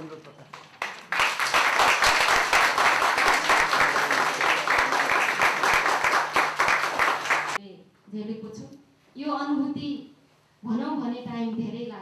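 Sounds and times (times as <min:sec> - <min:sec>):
crowd applauding: 0:00.5 - 0:07.6.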